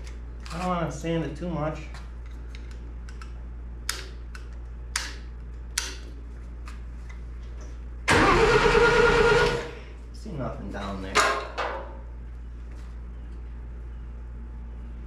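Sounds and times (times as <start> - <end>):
starter motor cranking engine: 8.1 - 9.8.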